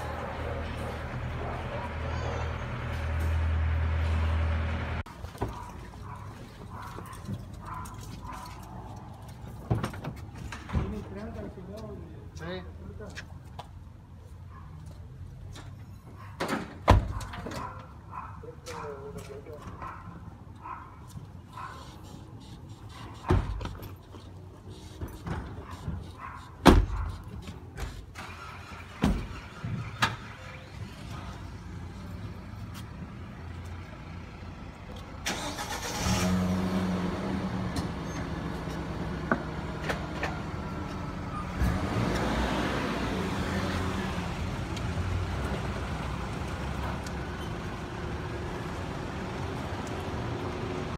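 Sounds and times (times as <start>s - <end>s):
truck engine starting and running: 0.0s - 5.2s, 28.0s - 50.9s.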